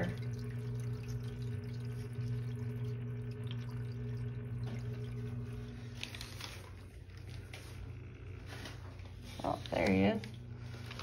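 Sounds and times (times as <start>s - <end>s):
water dripping: 0.0s - 7.5s
water trickling: 0.0s - 8.2s
filter pump humming: 0.0s - 11.0s.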